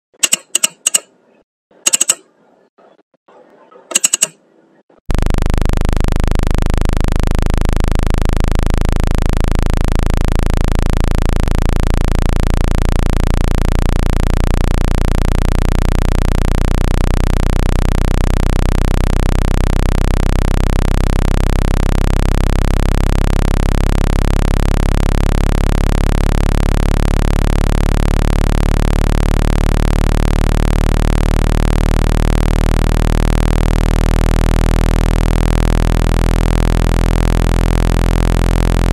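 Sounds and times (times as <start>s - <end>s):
short click: 0.1s - 1.2s, 1.9s - 2.3s, 3.9s - 4.4s
low synthesized droning tone: 5.1s - 38.9s.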